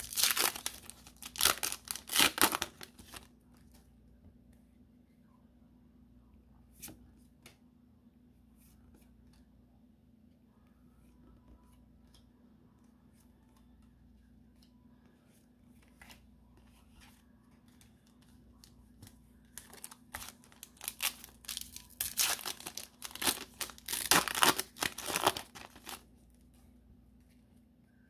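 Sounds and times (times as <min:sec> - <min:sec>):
foil wrapper crinkling and tearing: 0:00.0 - 0:03.3, 0:19.5 - 0:26.0.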